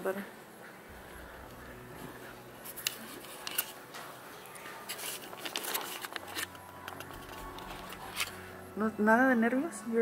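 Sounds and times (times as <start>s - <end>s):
faint room hum: 0.0s - 10.0s
camera handling rustles and clicks: 2.7s - 3.8s.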